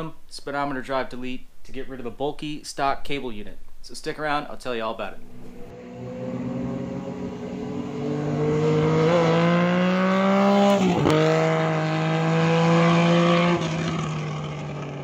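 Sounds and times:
vehicle engine accelerating hard: 0:05.2 - 0:15.0.

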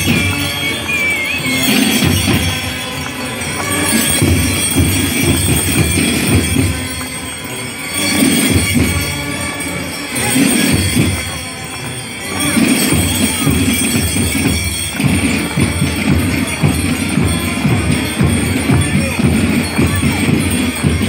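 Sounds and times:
high melody line: 0:00.0 - 0:03.0
belt bells jingling: 0:00.0 - 0:21.0
drum beats: 0:00.0 - 0:21.0.

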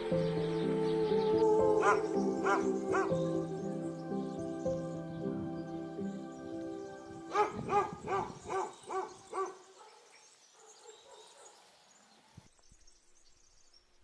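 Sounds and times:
faint outdoor background: 0:00.0 - 0:14.0
animal calling: 0:00.1 - 0:10.0.

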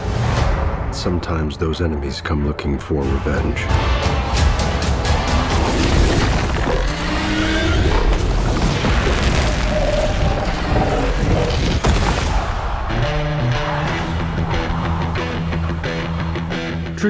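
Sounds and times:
dramatic music: 0:00.0 - 0:17.0
explosion booms and rumbling: 0:08.1 - 0:13.2.

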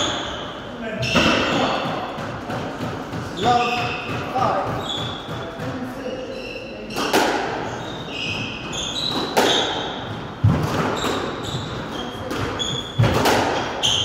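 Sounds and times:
squash ball smacking rackets and walls: 0:00.0 - 0:06.1, 0:06.8 - 0:14.0
shoes squeaking on wooden floor: 0:03.2 - 0:14.0.

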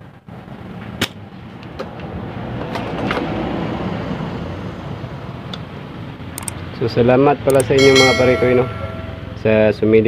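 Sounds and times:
passing motor vehicle rumbling: 0:00.0 - 0:10.0
light clicks: 0:06.4 - 0:06.6.

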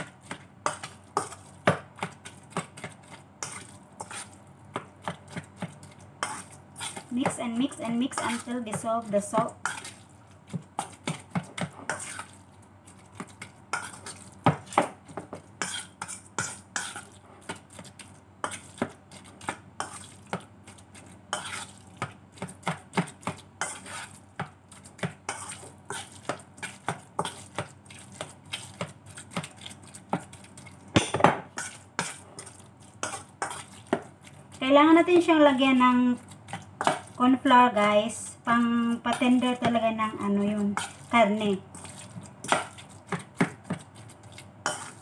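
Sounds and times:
metal spoon scraping steel bowl: 0:15.6 - 0:17.1, 0:21.3 - 0:21.7, 0:44.6 - 0:45.0.

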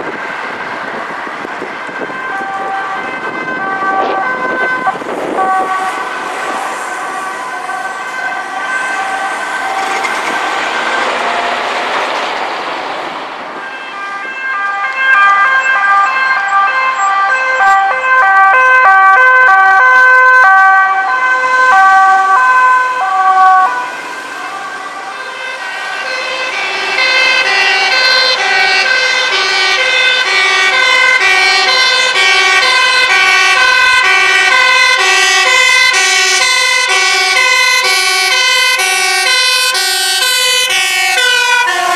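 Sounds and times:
passing traffic: 0:00.0 - 0:41.9
two-tone sirens: 0:00.0 - 0:41.9.

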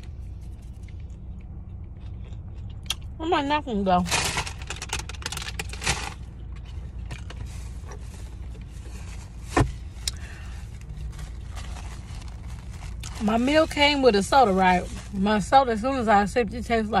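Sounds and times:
low rumble inside car: 0:00.0 - 0:17.0
person chewing: 0:00.5 - 0:03.2.

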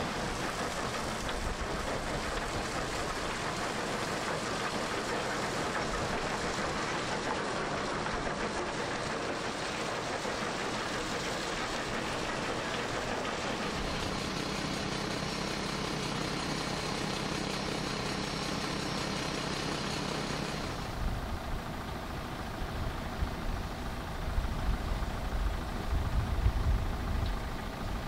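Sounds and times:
diesel engine hum: 0:00.0 - 0:28.0.

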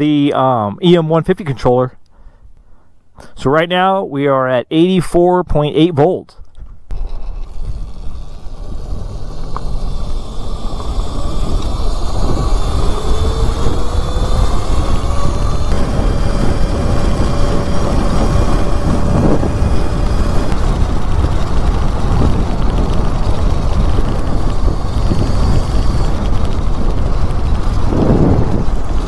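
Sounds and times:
wind rushing over microphone: 0:06.6 - 0:29.0
electric motor whine: 0:06.9 - 0:29.0.

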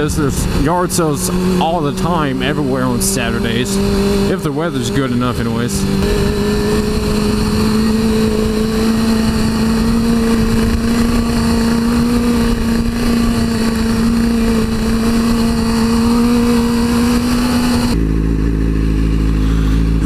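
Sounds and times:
wind rush on camera: 0:00.0 - 0:02.4, 0:05.8 - 0:18.0
motorcycle engine cruising: 0:00.0 - 0:20.0
motorcycle engines idling: 0:00.0 - 0:20.0.

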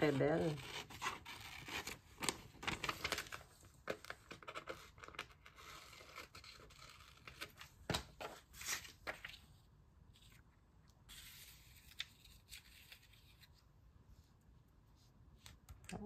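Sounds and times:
magazine paper rustling: 0:00.0 - 0:09.6.

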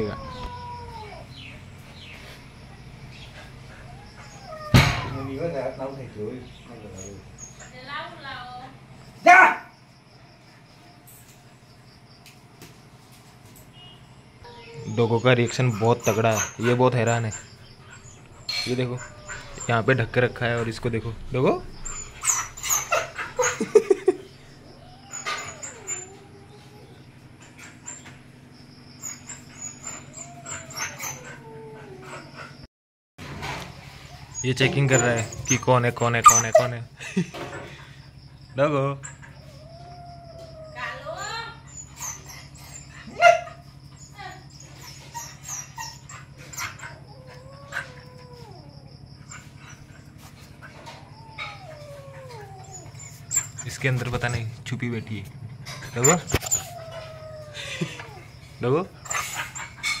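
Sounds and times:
wavering animal cries: 0:00.0 - 0:01.7, 0:03.2 - 0:05.8, 0:14.4 - 0:28.2, 0:28.8 - 0:32.7, 0:34.0 - 0:36.8, 0:38.9 - 0:54.4, 0:55.5 - 1:00.0
dog whining: 0:00.0 - 0:06.0, 0:14.4 - 0:32.7, 0:33.7 - 0:36.8, 0:38.9 - 0:54.6, 0:55.5 - 1:00.0
dog yipping: 0:03.4 - 0:05.4, 0:09.2 - 0:09.7, 0:14.4 - 0:20.8, 0:21.4 - 0:23.9, 0:24.6 - 0:28.2, 0:29.0 - 0:32.5, 0:34.0 - 0:36.8, 0:39.0 - 0:54.4, 0:55.7 - 1:00.0.

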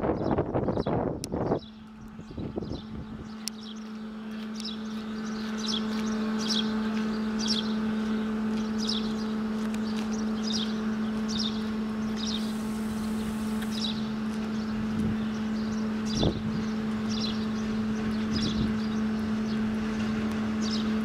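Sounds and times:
birds chirping: 0:00.0 - 0:19.9, 0:20.5 - 0:21.0
electric locomotive humming: 0:00.0 - 0:21.0.

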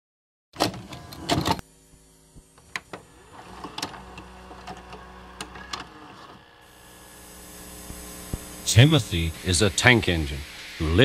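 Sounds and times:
tape mechanism whirring: 0:00.6 - 0:01.6, 0:02.4 - 0:10.0
steady electrical hum: 0:00.7 - 0:11.0.

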